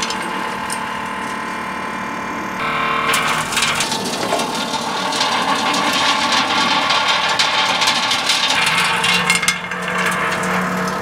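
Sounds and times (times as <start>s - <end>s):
steady motor hum: 0.0s - 11.0s
soil and stones clattering on sieve: 3.1s - 11.0s.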